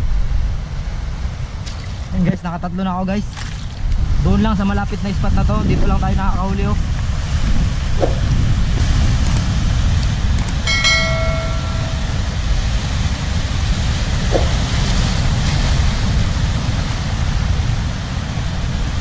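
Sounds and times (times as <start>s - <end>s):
wind rumble on microphone: 0.0s - 19.0s
short bright chime: 10.7s - 12.3s.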